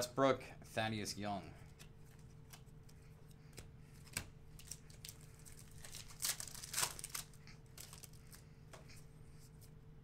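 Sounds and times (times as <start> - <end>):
card pack wrapper tearing and crinkling: 4.6 - 8.2.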